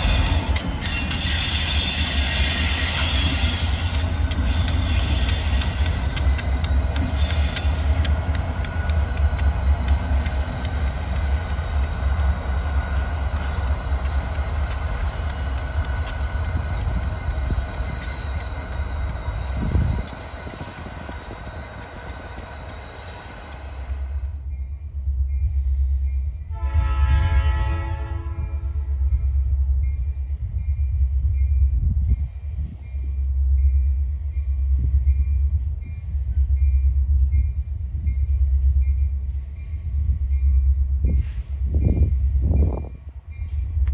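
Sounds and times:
diesel locomotives passing: 0.0 - 43.9
locomotive engine whine: 0.0 - 43.9
locomotive low rumble: 0.0 - 43.9
diesel locomotive horn toot: 26.5 - 29.2.

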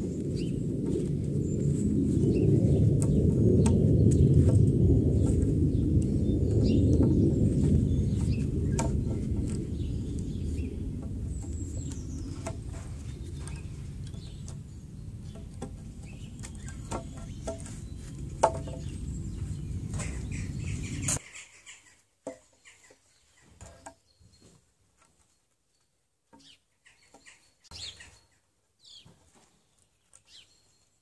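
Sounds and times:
low rumbling background noise: 0.0 - 21.2
faint high bird chirps: 25.2 - 29.1.

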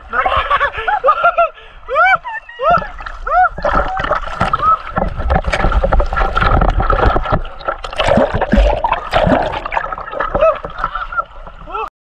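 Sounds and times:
river water splashing: 2.7 - 11.7.

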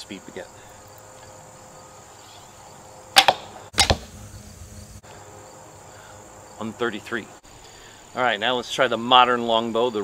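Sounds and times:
arrow thud: 3.2 - 4.2
bowstring snapping: 3.2 - 4.2.

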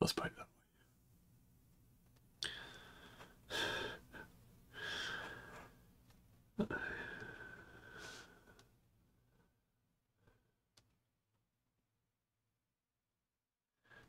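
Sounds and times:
man breathing: 2.4 - 5.9, 6.6 - 9.6.

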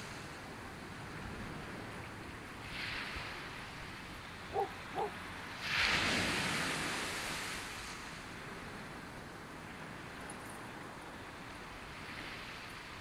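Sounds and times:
surf washing on beach: 0.0 - 13.0
wind: 0.0 - 13.0
distant dog barks: 4.5 - 5.2.

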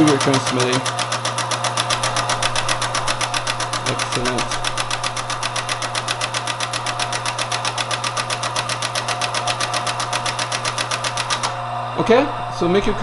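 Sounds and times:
teletype motor hum: 0.0 - 13.0.

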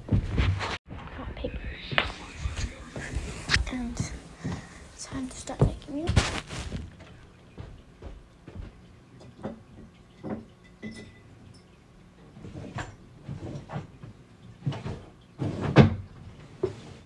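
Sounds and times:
objects knocking and clattering: 5.6 - 16.8.

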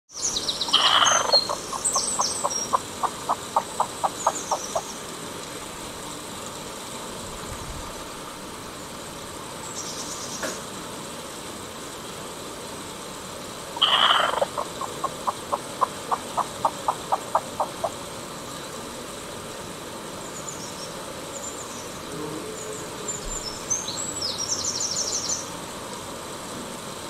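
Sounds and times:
small birds chirping: 0.1 - 5.0, 13.8 - 17.9
hen clucking: 0.7 - 4.9, 13.8 - 18.0
hen squawking: 0.7 - 4.9, 13.8 - 18.0.

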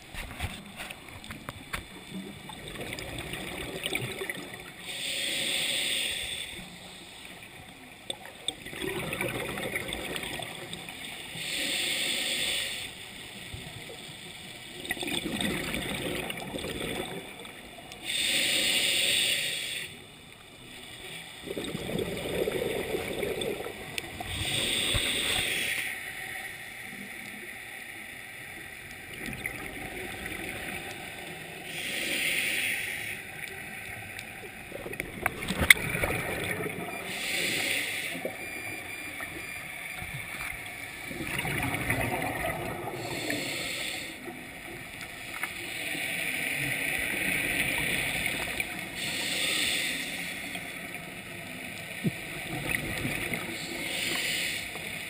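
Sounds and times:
exhaled bubbles gurgling: 0.0 - 4.9, 8.1 - 11.2, 14.7 - 18.3, 21.4 - 25.7, 29.0 - 32.0, 34.4 - 45.0, 51.9 - 54.4
scuba regulator breathing: 4.7 - 7.4, 11.2 - 13.4, 18.0 - 20.2, 21.0 - 27.1, 29.7 - 40.6, 42.6 - 51.0, 53.4 - 55.0.

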